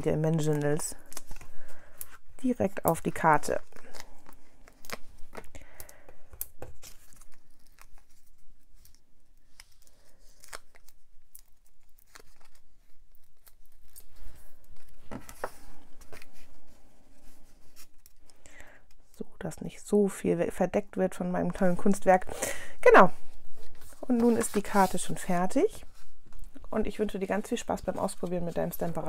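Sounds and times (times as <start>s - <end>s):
paper rustling: 3.1s - 18.4s, 23.2s - 29.0s.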